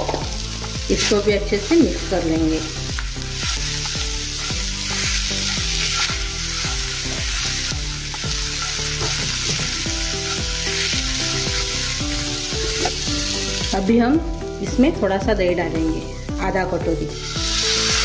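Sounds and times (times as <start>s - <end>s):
masala sizzling in hot oil: 0.0s - 18.0s
spoon scraping and tapping pan: 8.1s - 10.4s.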